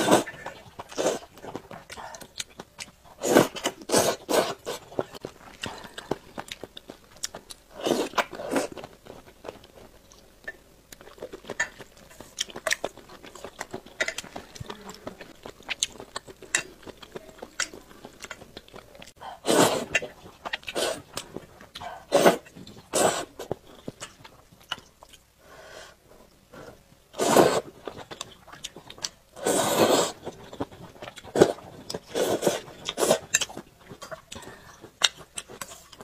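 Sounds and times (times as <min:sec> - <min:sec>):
person slurping noodles: 0:00.0 - 0:01.3, 0:03.2 - 0:04.8, 0:07.7 - 0:08.7, 0:19.4 - 0:20.1, 0:20.7 - 0:21.1, 0:21.9 - 0:23.4, 0:27.2 - 0:27.7, 0:29.4 - 0:30.3, 0:31.3 - 0:33.3
wet chewing and lip-smacking: 0:00.1 - 0:19.2, 0:19.8 - 0:25.3, 0:27.6 - 0:29.2, 0:30.1 - 0:36.0.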